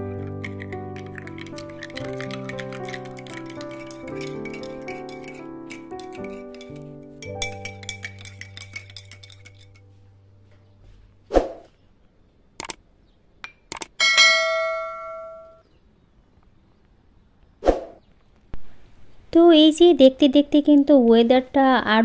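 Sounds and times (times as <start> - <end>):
background music with ticking beat: 0.2 - 9.4
mouse clicks: 12.6 - 12.8
bell ding: 14.0 - 15.6.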